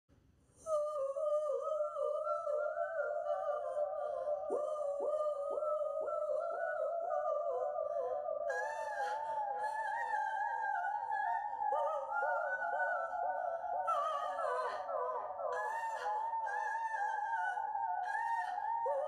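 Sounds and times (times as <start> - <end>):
woman singing unaccompanied: 0.6 - 19.0.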